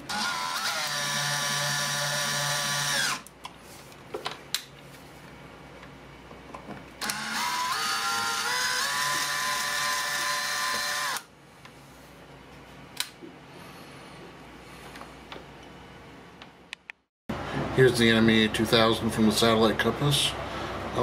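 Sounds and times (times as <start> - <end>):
cordless drill motor whine: 0.0 - 3.3, 7.0 - 11.3.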